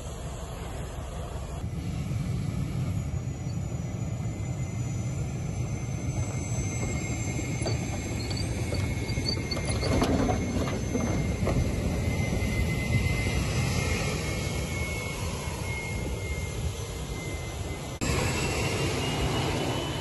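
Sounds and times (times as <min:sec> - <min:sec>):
tank turbine engine whine: 0:00.0 - 0:20.0.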